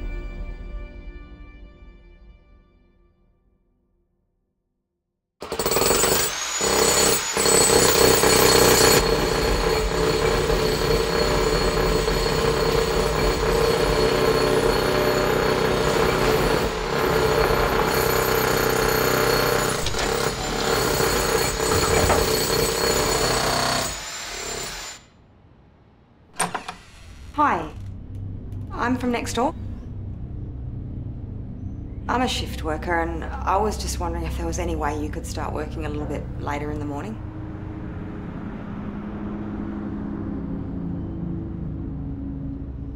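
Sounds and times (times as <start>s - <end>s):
jackhammer hammering: 5.4s - 25.0s.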